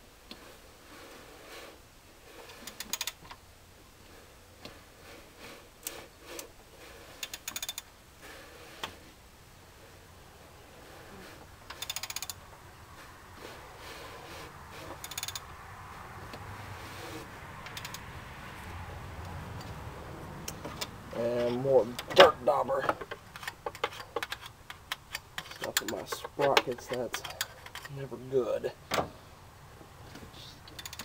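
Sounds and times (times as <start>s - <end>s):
ratchet wrench clicking: 2.7s - 3.2s, 7.2s - 7.9s, 11.7s - 12.4s, 15.0s - 15.5s, 17.7s - 18.0s, 30.7s - 31.0s
tools and metal parts knocking: 15.0s - 15.4s, 22.0s - 28.0s, 30.7s - 31.0s.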